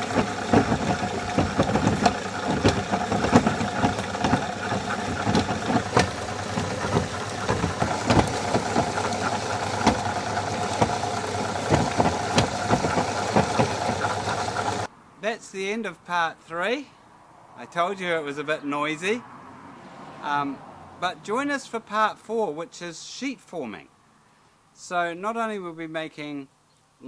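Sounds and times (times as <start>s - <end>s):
motor hum: 0.0s - 14.9s
sharp knocks and splashes: 0.0s - 14.9s.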